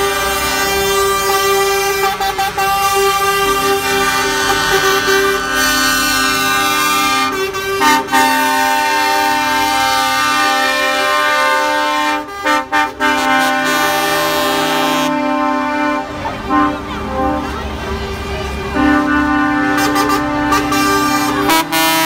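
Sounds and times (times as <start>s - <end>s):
lorry air horns blasting: 0.0s - 17.6s, 18.7s - 22.0s
truck engine rumble: 0.0s - 22.0s.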